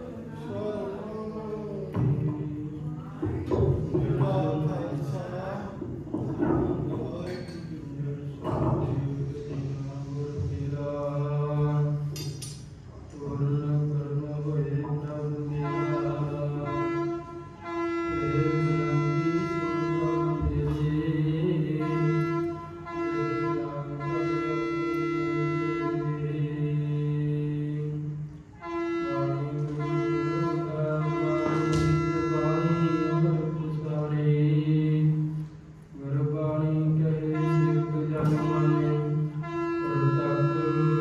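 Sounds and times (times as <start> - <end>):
devotional music with long held notes: 8.4 - 41.0.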